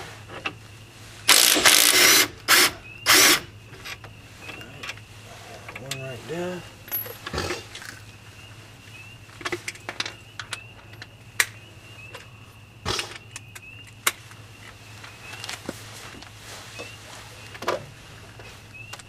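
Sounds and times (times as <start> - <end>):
metallic clinks of hand tools: 6.9 - 7.3.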